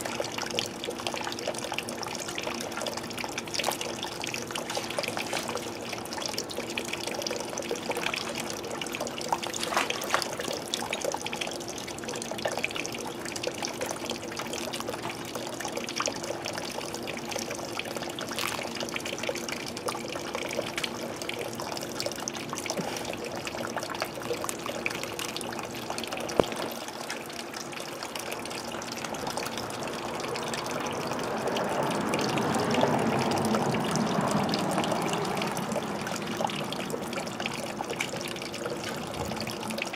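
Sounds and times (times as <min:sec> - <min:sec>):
low pump hum: 0:00.0 - 0:39.9
pool water trickling: 0:00.0 - 0:39.9.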